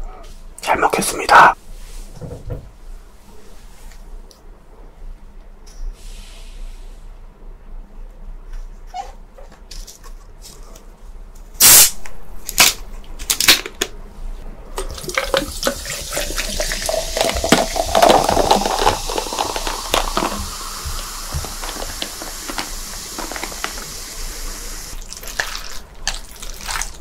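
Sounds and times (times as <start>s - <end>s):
continuous wet crackle: 25.0s - 27.0s.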